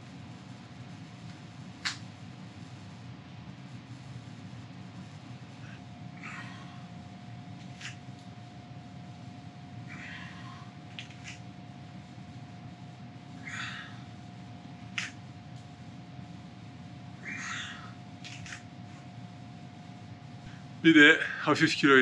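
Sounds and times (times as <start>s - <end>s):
steady low hum: 0.0s - 22.0s
man breathing forcefully: 5.8s - 7.2s.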